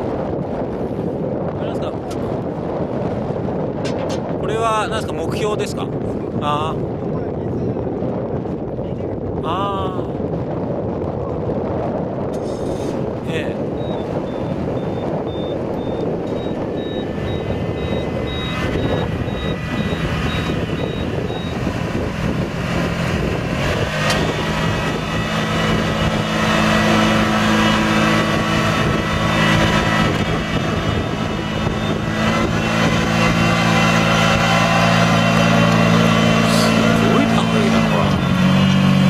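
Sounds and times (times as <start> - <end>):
engine running: 12.2 - 39.0
high rapid beeping: 13.8 - 21.6.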